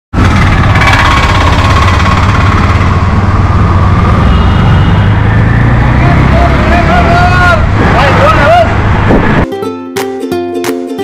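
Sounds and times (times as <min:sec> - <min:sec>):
auto-rickshaw engine rumbling: 0:00.1 - 0:09.4.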